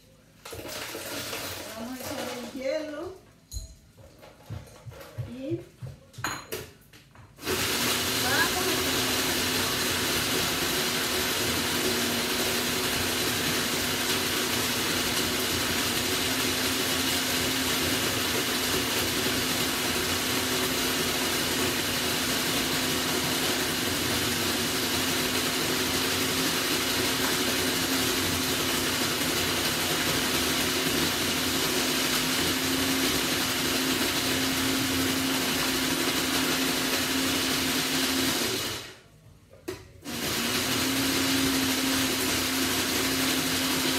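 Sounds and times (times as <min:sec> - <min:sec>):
ice-shaving machine motor whine: 0:07.4 - 0:39.0, 0:40.0 - 0:43.9.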